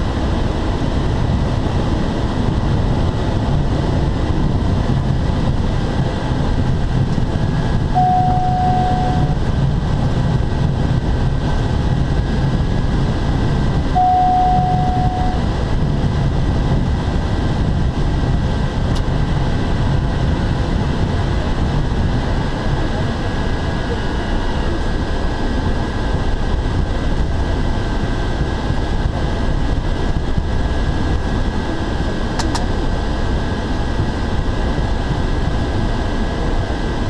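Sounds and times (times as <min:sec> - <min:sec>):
turboprop engine drone: 0:00.0 - 0:37.0
steady beep: 0:07.9 - 0:09.4, 0:13.9 - 0:15.5.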